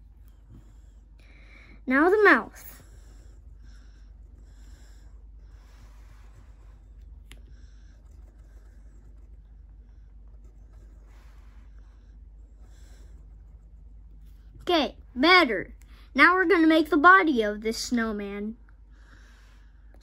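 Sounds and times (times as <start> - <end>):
pencil scratching on paper: 7.8 - 14.7.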